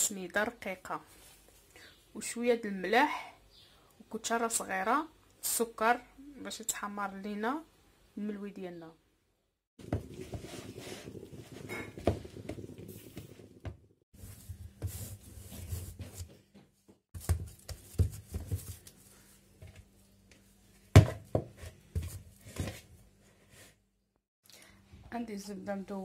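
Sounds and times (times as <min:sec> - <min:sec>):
hand mixing flour in plastic bowl: 0:09.8 - 0:13.4, 0:14.2 - 0:16.2.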